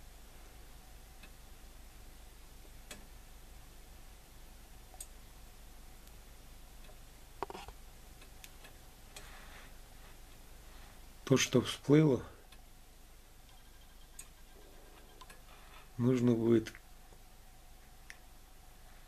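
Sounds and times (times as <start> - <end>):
faint hiss: 0.0 - 19.0
soft clicks and ticks: 1.2 - 1.4, 2.6 - 3.1, 4.9 - 5.2, 6.8 - 9.3, 13.5 - 15.9.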